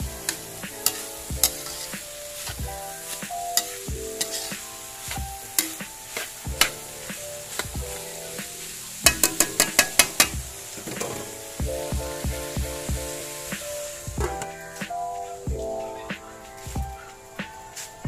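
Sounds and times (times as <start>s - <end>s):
meat sizzling in a pan: 0.0s - 17.0s
background music: 0.0s - 18.0s
metal spatula scraping a wok: 0.2s - 11.5s.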